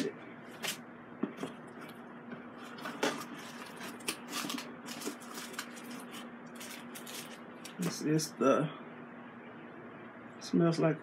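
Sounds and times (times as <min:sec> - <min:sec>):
plastic and cardboard crinkling: 0:02.6 - 0:08.0.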